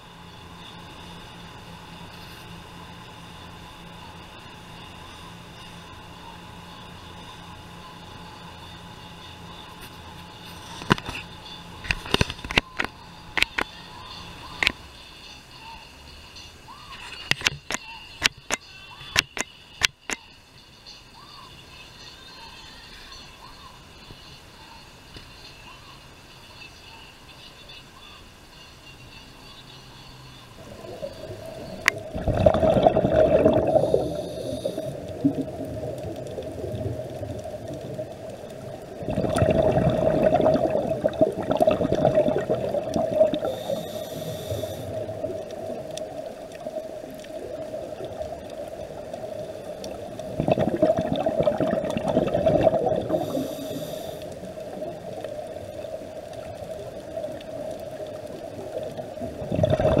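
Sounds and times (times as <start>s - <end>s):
steady low hum: 0.0s - 17.2s, 23.4s - 60.0s
scuba diver breathing bubbles: 30.8s - 38.0s, 39.0s - 46.2s, 48.8s - 55.1s, 58.7s - 60.0s
short hisses: 43.4s - 45.0s, 53.1s - 54.4s.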